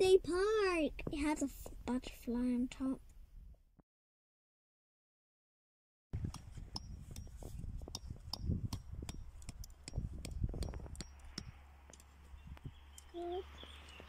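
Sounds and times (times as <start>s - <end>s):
hammer knocking metal tent peg: 6.3s - 11.5s.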